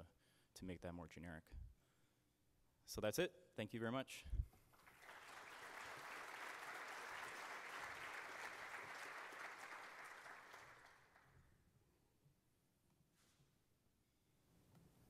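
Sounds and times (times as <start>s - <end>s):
audience applauding: 4.7s - 11.4s.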